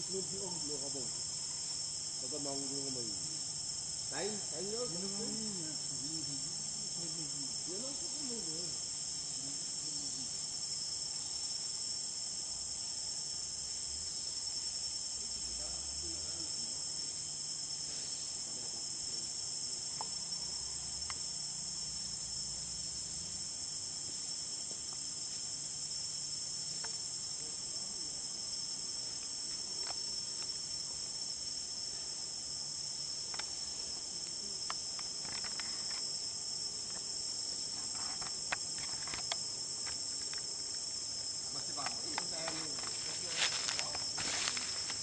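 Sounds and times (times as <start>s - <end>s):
high-pitched insect chorus: 0.0s - 45.0s
faint ticks and rustles: 32.7s - 45.0s.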